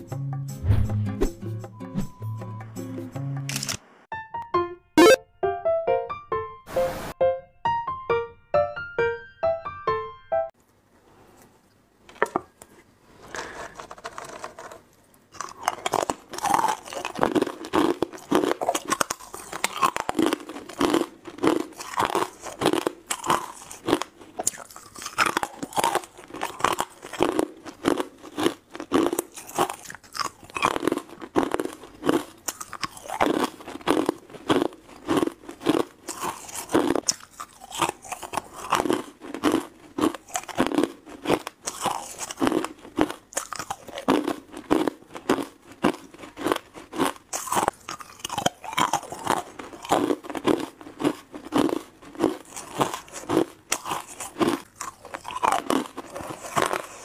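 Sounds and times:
ice cubes crunching: 0:13.3 - 0:57.0.

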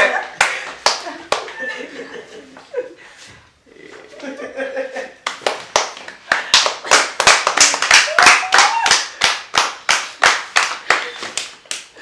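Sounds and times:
people clapping in rhythm: 0:00.0 - 0:01.6, 0:05.2 - 0:12.0.

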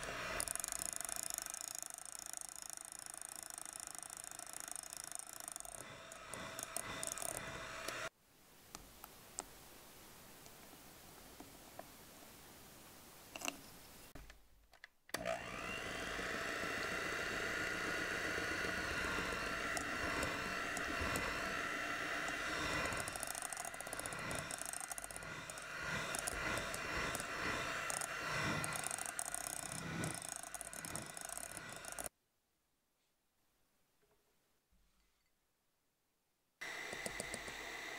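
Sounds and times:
electric hand mixer whirring: 0:00.0 - 0:08.1, 0:15.2 - 0:32.1, 0:36.6 - 0:37.9.

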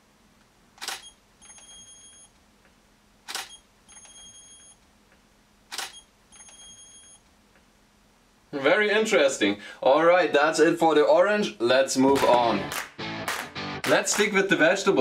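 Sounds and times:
faint steady hum: 0:00.0 - 0:12.1
camera shutter clicks: 0:00.8 - 0:01.6, 0:03.3 - 0:04.1, 0:05.7 - 0:06.6.

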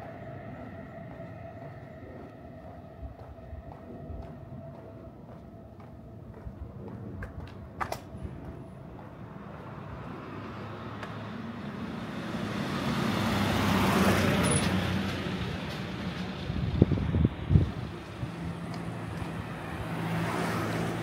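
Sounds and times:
vehicle passing by: 0:08.1 - 0:21.0.

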